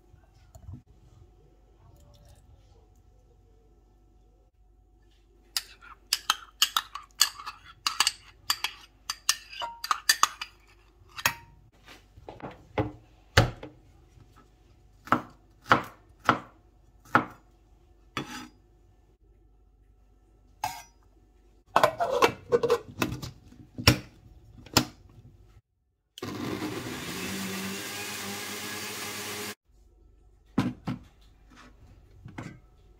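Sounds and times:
food processor motor running: 26.2s - 29.6s.

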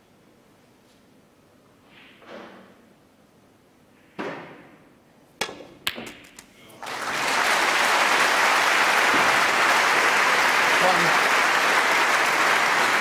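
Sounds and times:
cue striking ball: 5.4s - 6.3s
audience applause: 6.8s - 13.0s.

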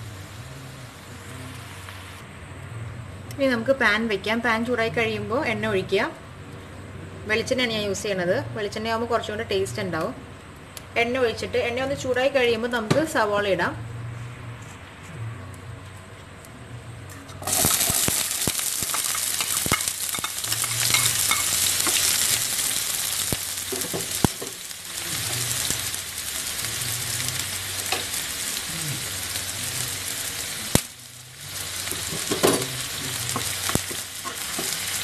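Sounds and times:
onions sizzling in oil: 0.0s - 2.2s, 17.4s - 35.0s.

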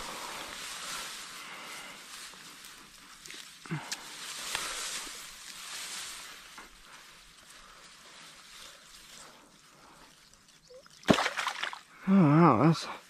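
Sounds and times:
weeds rustling: 0.0s - 11.8s
water splashing: 10.7s - 12.0s
sharp loud knock or splash: 11.0s - 11.8s.

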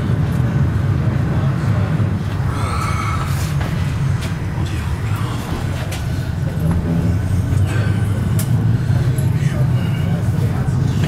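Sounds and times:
tram wheels rumbling: 0.0s - 11.0s.

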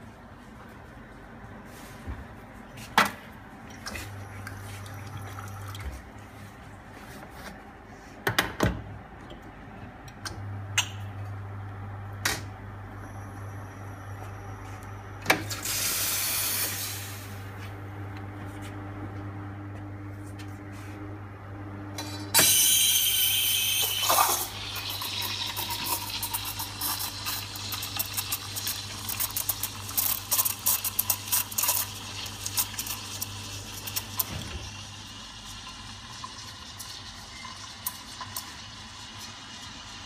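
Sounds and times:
espresso pump humming: 22.3s - 40.0s.

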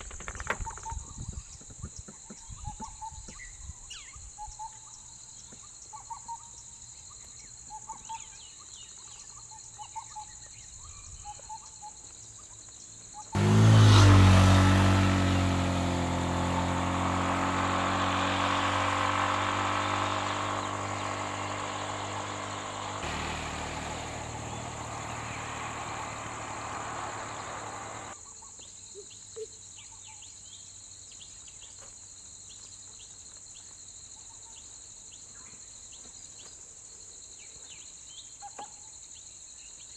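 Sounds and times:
insect drone: 11.9s - 31.2s
motor vehicle engine: 13.4s - 28.2s.

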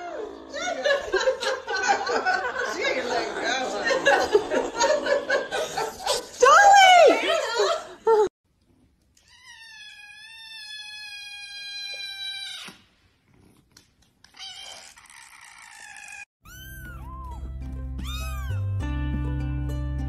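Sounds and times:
kitten meowing: 16.5s - 17.3s, 18.0s - 18.6s
background music: 16.8s - 20.0s.

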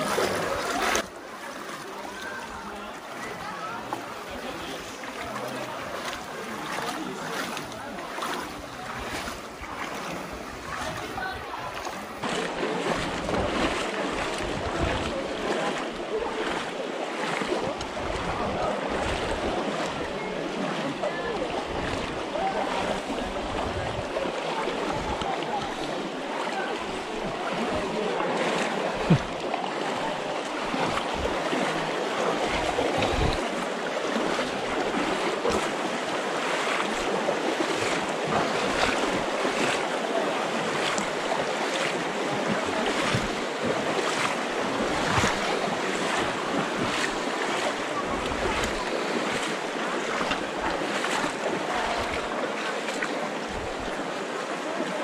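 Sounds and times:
feet wading through water: 0.0s - 55.0s
river water rushing: 0.0s - 55.0s.

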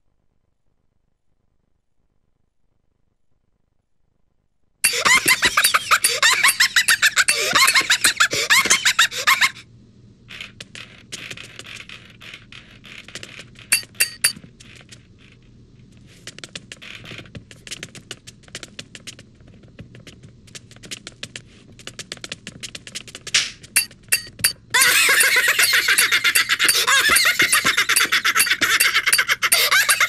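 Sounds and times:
high-pitched gliding squeaking: 11.4s - 14.4s, 23.8s - 30.0s
scratchy rustling: 14.4s - 23.7s.

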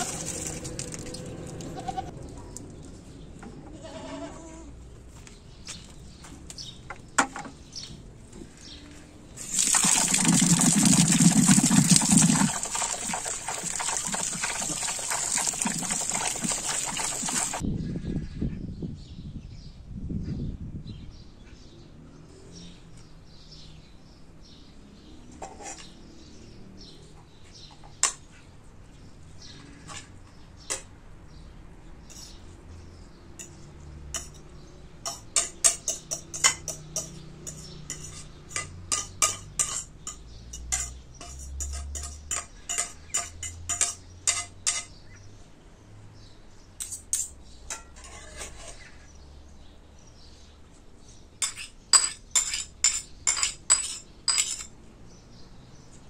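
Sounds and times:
metal spoon clinking on bowls: 33.4s - 45.0s, 46.8s - 48.8s, 51.4s - 54.7s.

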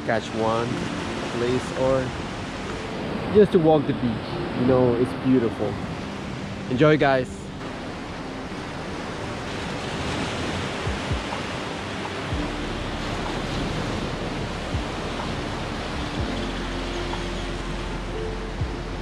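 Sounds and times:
waves washing up beach: 0.0s - 19.0s
low thumps: 7.3s - 19.0s.

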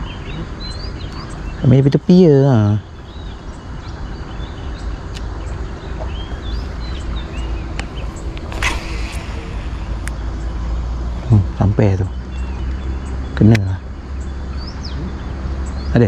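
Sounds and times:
bird chirps: 0.0s - 16.0s
low rumble: 5.4s - 12.9s
fishing rod cast swish: 8.4s - 10.3s.

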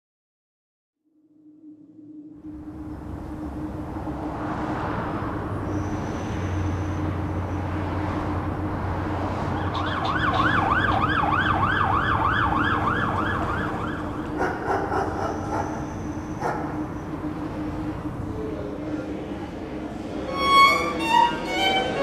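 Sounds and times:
low city traffic hum: 1.6s - 22.0s
emergency vehicle siren: 2.1s - 18.8s.

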